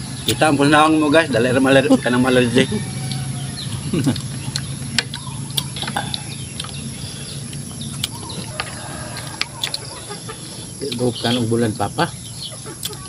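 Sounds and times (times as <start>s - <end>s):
birds chirping: 0.0s - 13.0s
steady low hum: 0.0s - 13.0s
chewing sounds: 3.0s - 11.1s.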